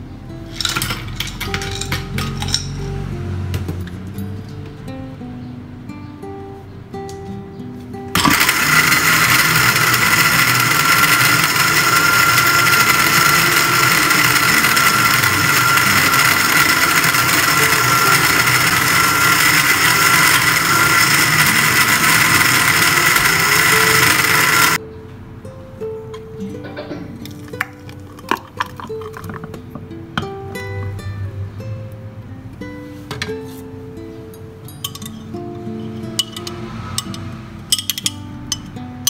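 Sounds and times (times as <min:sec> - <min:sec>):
blender crushing ice: 0:00.6 - 0:02.8, 0:08.2 - 0:24.8, 0:27.4 - 0:29.6.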